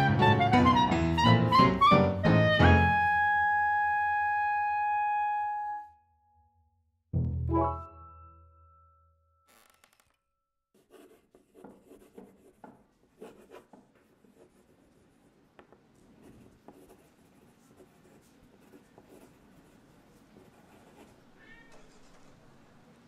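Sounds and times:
pen scratching on paper: 10.8s - 15.1s, 16.2s - 21.2s.

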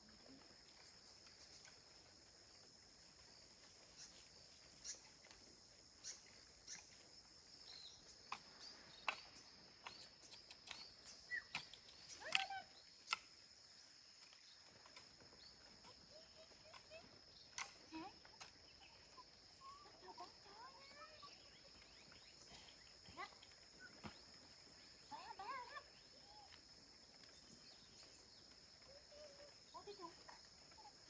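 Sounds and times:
insects droning: 0.0s - 31.0s
bird-like chirps: 3.8s - 5.3s, 6.0s - 13.2s, 20.8s - 25.1s.

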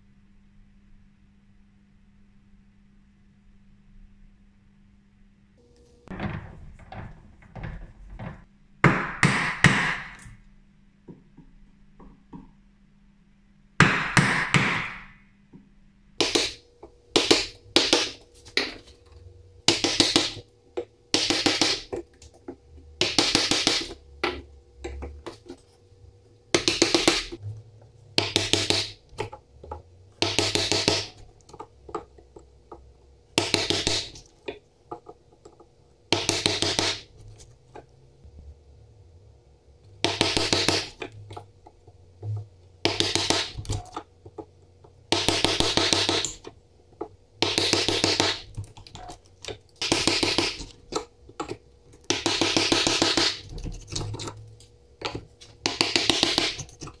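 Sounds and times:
wooden mallet striking chisel: 8.8s - 10.4s, 13.8s - 15.2s, 16.2s - 18.8s, 19.7s - 22.1s, 23.0s - 25.4s, 26.5s - 27.4s, 28.2s - 37.2s, 40.0s - 41.4s, 42.2s - 44.5s, 45.1s - 54.2s, 55.0s - 57.0s.

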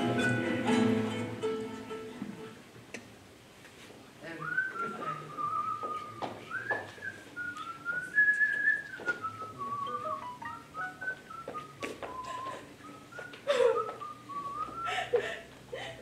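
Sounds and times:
person whistling a tune: 4.4s - 15.2s.

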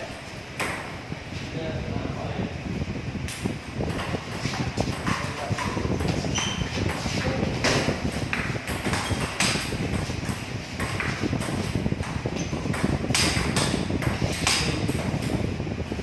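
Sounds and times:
ball bouncing on table: 7.6s - 15.0s.

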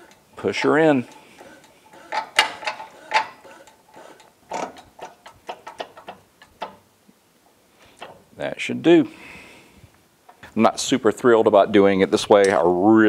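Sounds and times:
hydraulic press pressing: 0.0s - 6.8s
metallic clicks and ticks: 0.0s - 6.8s.

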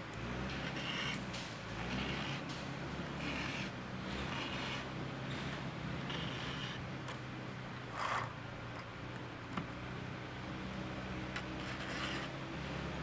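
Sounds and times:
file rasping on chainsaw chain: 0.6s - 1.2s, 1.8s - 2.4s, 3.2s - 4.9s, 6.1s - 6.8s, 11.6s - 12.3s.

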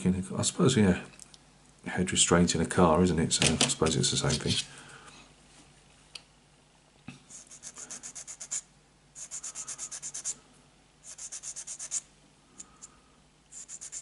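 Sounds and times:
sanding stick scratching plastic: 7.4s - 8.6s, 9.2s - 10.4s, 11.1s - 12.0s, 13.5s - 14.0s.

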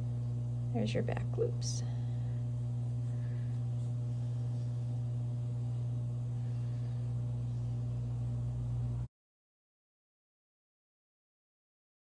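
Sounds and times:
steady low hum: 0.0s - 9.1s.

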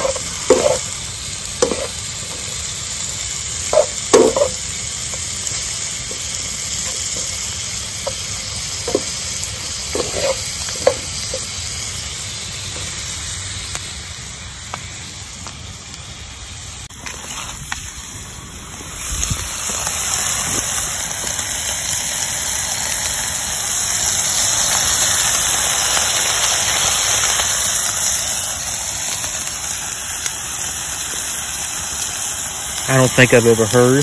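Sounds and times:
meat sizzling on a grill: 0.0s - 34.0s
sharp pops: 1.6s - 2.6s, 3.7s - 5.3s, 8.0s - 9.3s, 9.9s - 11.5s.

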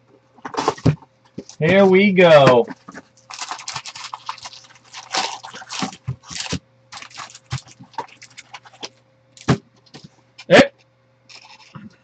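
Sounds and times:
foil packs crinkling: 0.4s - 10.0s.

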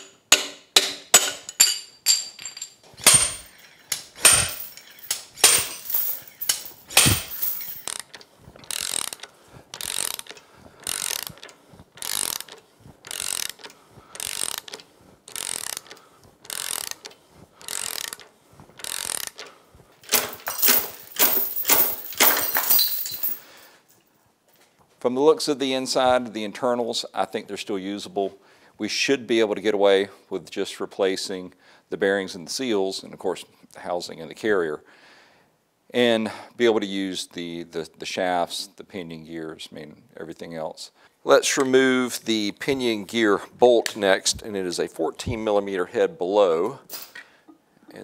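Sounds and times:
slide hammer metallic clanks: 0.4s - 7.9s
chain rattle: 1.5s - 8.0s, 20.0s - 23.8s.

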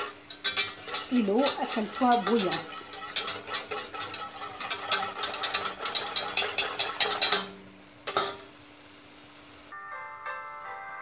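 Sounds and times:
whisk scraping metal saucepan: 0.0s - 8.4s.

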